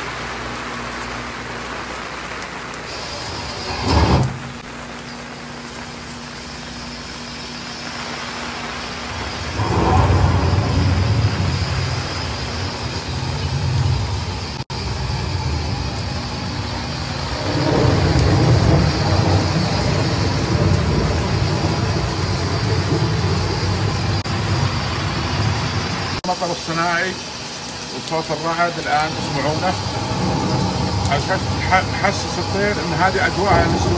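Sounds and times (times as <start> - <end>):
artificial rain pattering on umbrella: 0.0 - 3.5, 4.4 - 9.6
recorded thunder rumbling: 7.9 - 26.2, 27.4 - 33.9.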